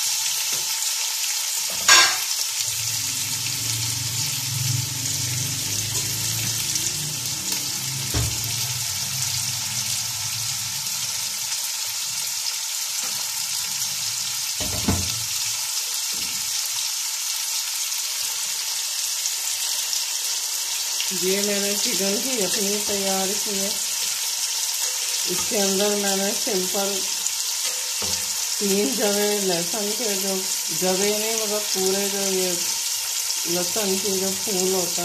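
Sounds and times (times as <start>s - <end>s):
onions sizzling in hot oil: 0.0s - 35.0s
metal spatula knocking pot: 1.9s - 2.2s.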